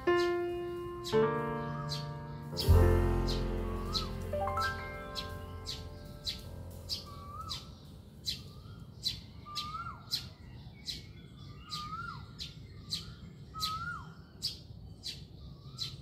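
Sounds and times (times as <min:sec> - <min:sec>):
birds chirping: 0:00.0 - 0:16.0
bird whistle dropping in pitch: 0:01.7 - 0:06.3.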